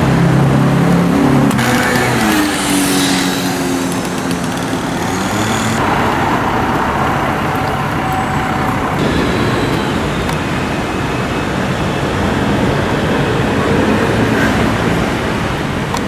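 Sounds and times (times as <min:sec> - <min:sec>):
motor vehicle passing: 0:00.0 - 0:11.6
city street traffic: 0:00.0 - 0:16.0.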